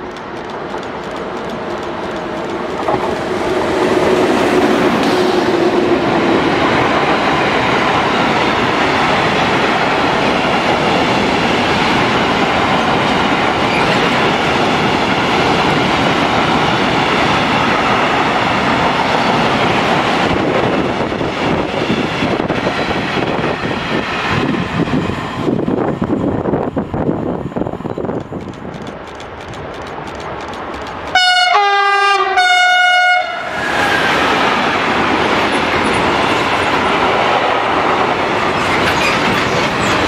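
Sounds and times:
train wheel clacks: 0.0s - 24.2s, 28.0s - 31.3s, 37.9s - 40.0s
freight train wheels rumbling: 0.0s - 32.4s, 33.2s - 40.0s.

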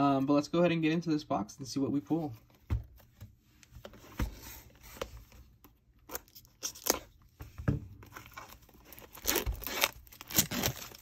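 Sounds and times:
plastic shrink wrap crinkling and tearing: 6.0s - 7.2s, 8.0s - 11.0s.

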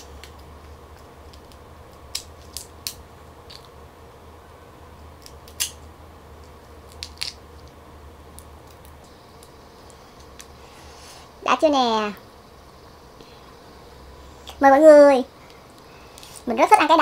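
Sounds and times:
prawn shell cracking: 0.0s - 3.8s, 5.1s - 10.6s.

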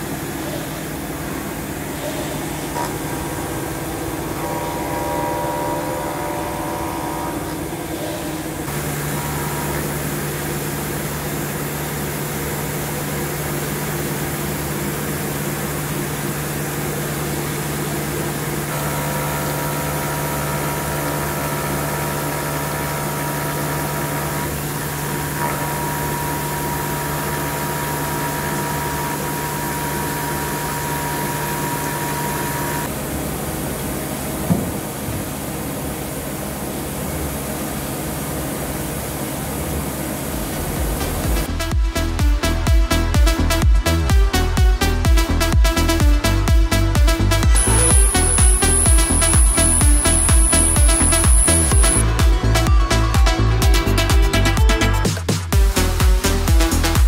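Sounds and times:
high milling whine: 0.0s - 41.9s, 47.0s - 53.1s
machine hum: 0.0s - 57.0s
single knock: 34.5s - 34.8s.

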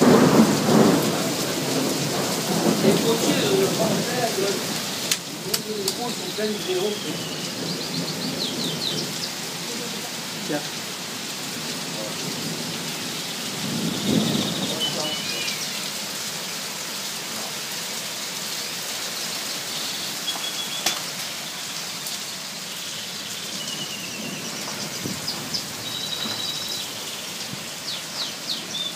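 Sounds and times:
low rumble of thunder: 0.0s - 4.8s, 7.1s - 9.8s, 11.6s - 15.1s, 23.7s - 27.8s
heavy rain pouring: 0.0s - 28.9s.

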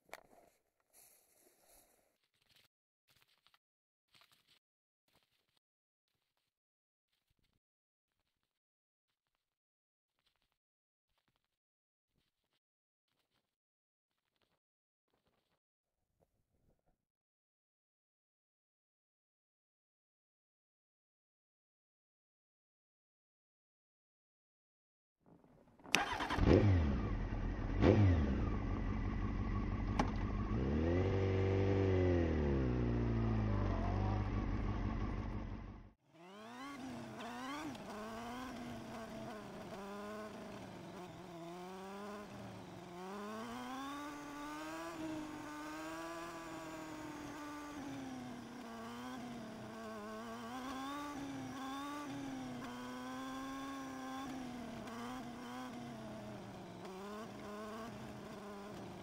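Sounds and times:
motorcycle engine revving: 25.8s - 59.0s.

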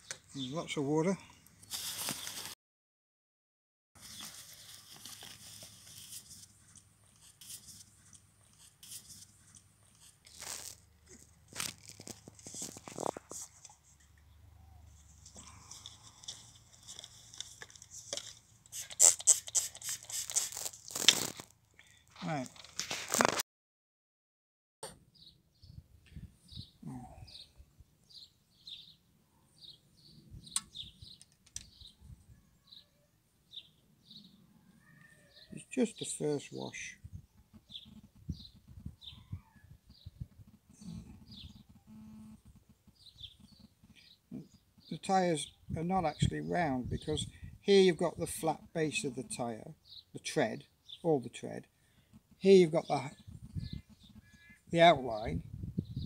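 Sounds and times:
scratchy rustling and crackling: 1.7s - 2.6s, 4.0s - 14.1s, 14.9s - 21.6s, 22.4s - 23.4s
small bird chirping: 5.5s - 13.5s, 26.4s - 36.1s, 37.0s - 46.4s, 51.8s - 54.7s.

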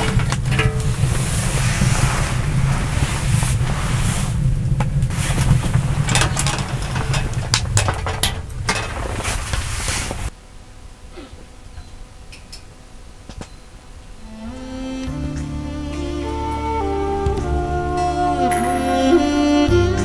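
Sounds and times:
burning logs crackling and popping: 0.0s - 10.3s
low rumble of stove flames: 0.0s - 14.4s.

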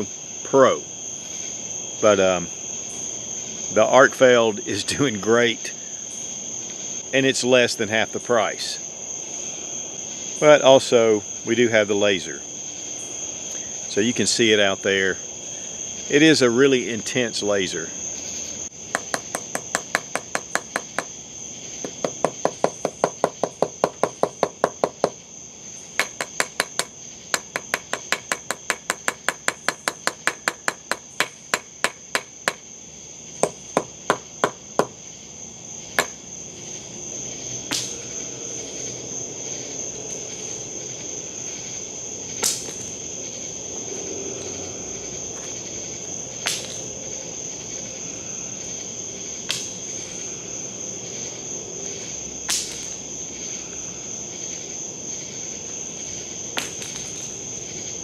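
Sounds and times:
crickets chirping: 0.0s - 58.0s
flashlight knocking on wooden post: 18.9s - 21.1s, 21.8s - 25.2s, 26.0s - 32.6s, 33.4s - 35.0s, 36.0s - 36.2s.

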